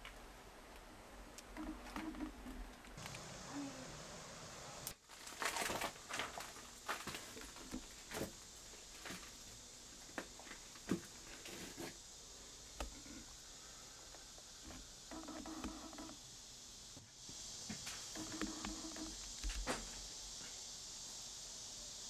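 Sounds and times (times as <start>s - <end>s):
footsteps crunching over debris: 5.0s - 9.4s.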